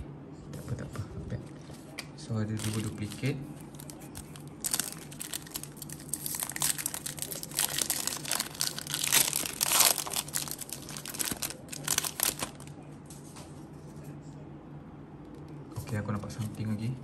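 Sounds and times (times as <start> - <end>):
foil wrapper crinkling: 2.6 - 12.7
foil wrapper ripping: 2.6 - 12.7.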